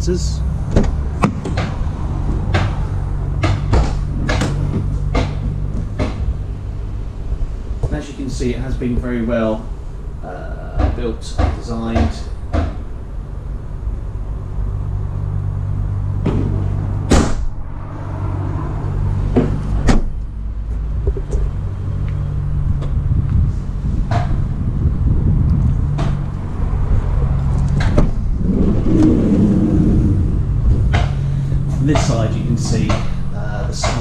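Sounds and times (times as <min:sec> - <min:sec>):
low mechanical hum: 0:00.0 - 0:34.0
knocks and clunks: 0:00.6 - 0:06.4, 0:10.7 - 0:12.9, 0:16.2 - 0:17.6, 0:19.3 - 0:21.8, 0:24.0 - 0:24.6, 0:25.5 - 0:34.0.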